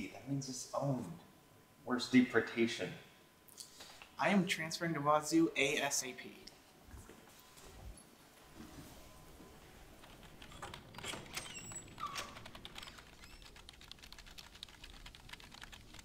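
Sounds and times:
laptop keyboard typing: 10.0s - 16.0s.

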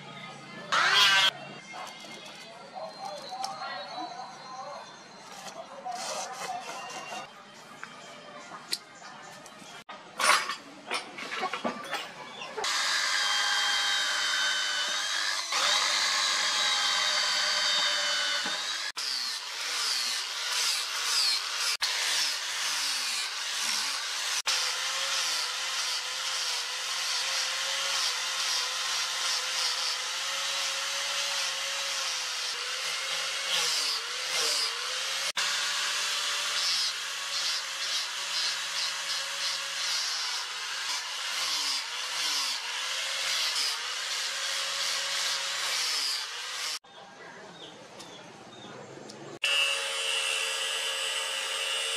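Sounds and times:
angle grinder sanding wood: 12.6s - 46.8s.

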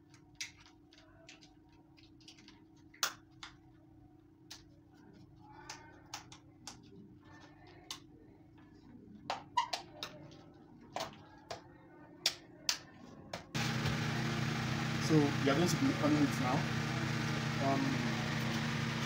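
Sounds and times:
loud steady noise: 13.6s - 19.0s.

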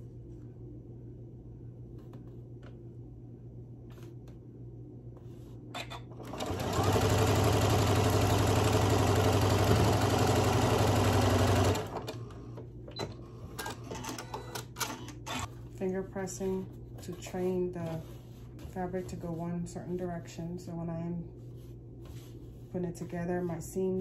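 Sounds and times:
sewing machine stitching: 6.2s - 12.2s.

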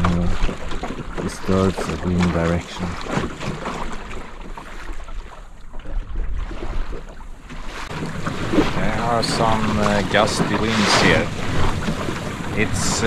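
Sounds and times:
water splashing against hull: 0.0s - 13.0s
wind buffeting microphone: 7.9s - 13.0s.

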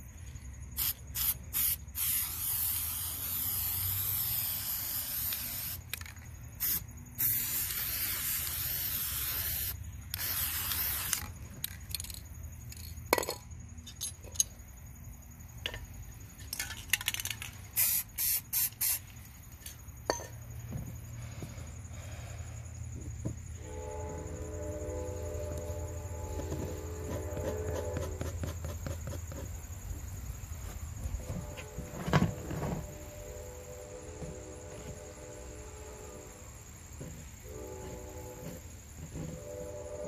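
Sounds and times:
spray paint can hissing: 0.8s - 11.4s, 17.7s - 19.2s.

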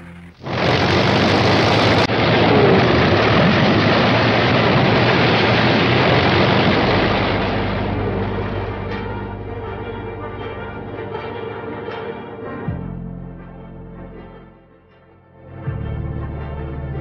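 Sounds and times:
jet engines roaring: 0.0s - 9.6s.

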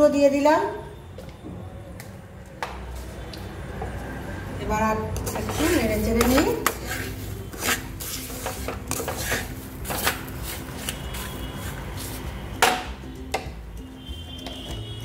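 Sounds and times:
spatula scraping and knocking pan: 5.2s - 11.8s.

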